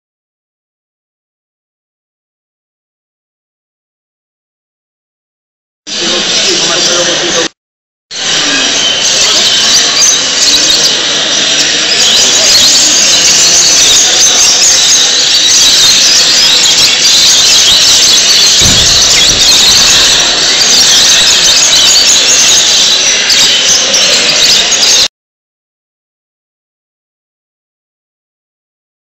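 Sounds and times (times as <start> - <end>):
low thump: 18.5 - 20.8.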